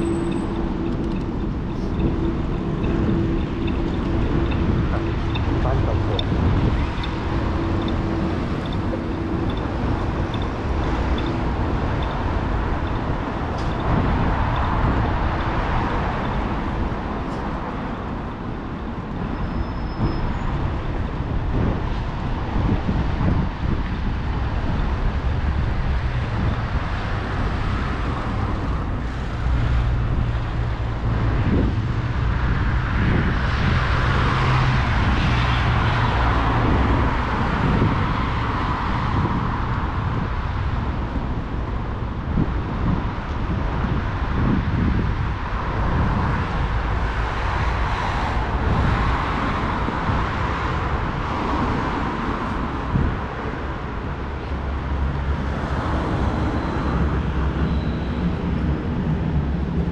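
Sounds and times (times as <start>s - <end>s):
cars passing: 0.0s - 59.9s
constant low traffic rumble: 0.0s - 59.9s.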